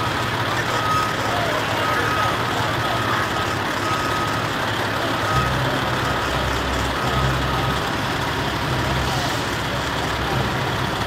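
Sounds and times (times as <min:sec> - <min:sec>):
backup alarm beeping: 0:00.0 - 0:04.6
deep engine hum: 0:00.0 - 0:11.0
outdoor engine noise: 0:00.0 - 0:11.0.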